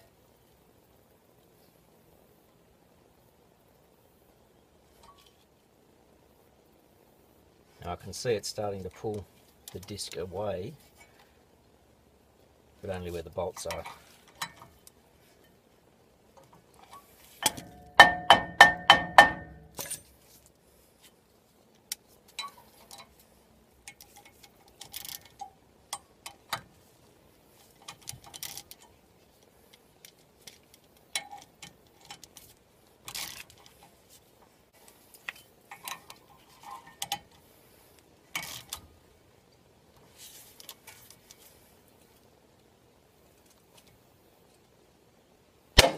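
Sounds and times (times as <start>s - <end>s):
tool knocking on metal: 18.0s - 19.5s.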